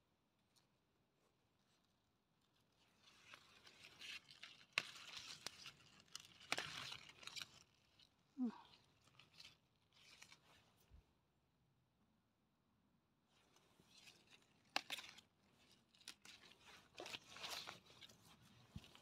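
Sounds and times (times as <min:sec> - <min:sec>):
leaves rustling: 0:02.9 - 0:10.7, 0:13.4 - 0:19.0
stems snapping: 0:03.8 - 0:08.0, 0:14.0 - 0:18.1.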